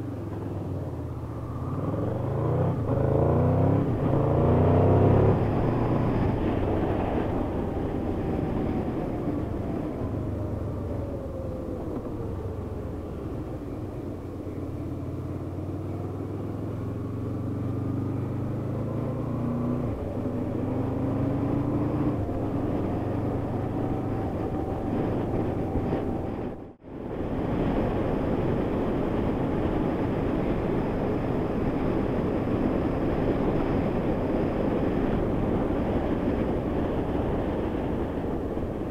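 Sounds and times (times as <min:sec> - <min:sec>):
motorcycle engine revving: 0:01.2 - 0:08.8, 0:14.9 - 0:26.7.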